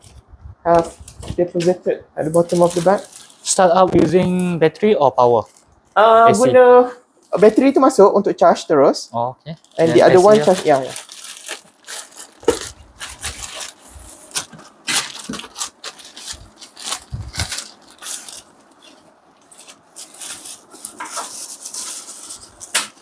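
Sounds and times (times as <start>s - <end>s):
packaging rustling: 2.3s - 4.1s, 9.6s - 23.0s.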